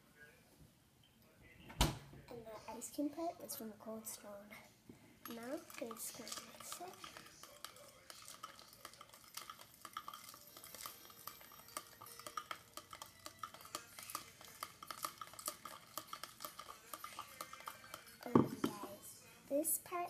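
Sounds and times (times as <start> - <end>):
spoon clinking in a cup: 5.2 - 19.3.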